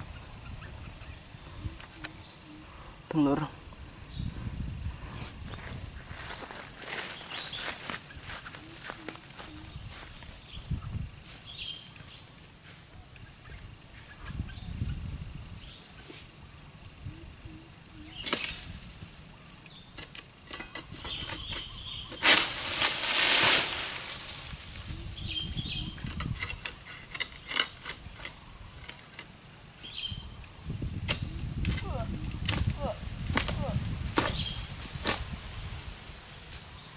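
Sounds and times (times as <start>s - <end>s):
insects chirring: 0.0s - 36.9s
loud rustling scrape: 20.5s - 24.6s.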